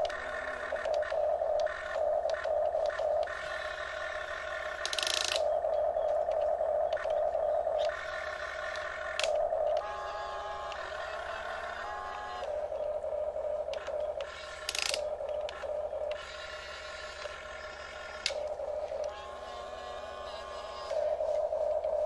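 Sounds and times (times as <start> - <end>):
electric gear motors whining: 0.0 - 22.0.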